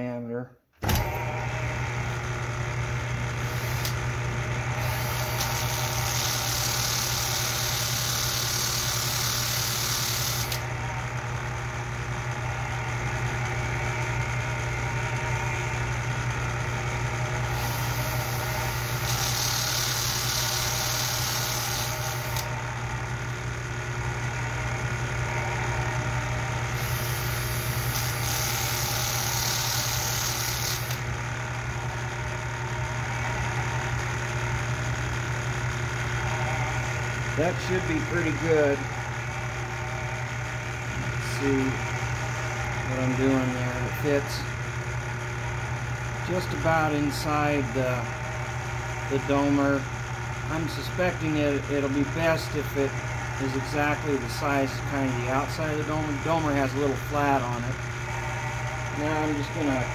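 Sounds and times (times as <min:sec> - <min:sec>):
polishing motor humming: 0:03.4 - 0:11.7, 0:17.4 - 0:23.2, 0:25.2 - 0:31.9, 0:36.0 - 0:44.4, 0:48.5 - 0:59.9
high-pitched grinding hiss: 0:04.8 - 0:10.6, 0:17.5 - 0:22.4, 0:26.8 - 0:31.0.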